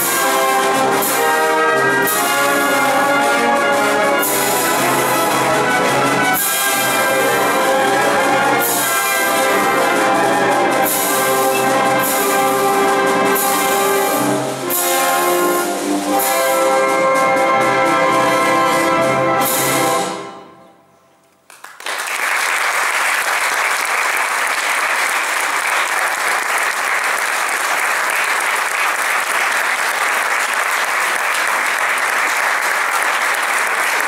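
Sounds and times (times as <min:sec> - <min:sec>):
audience applause: 0:21.5 - 0:34.0.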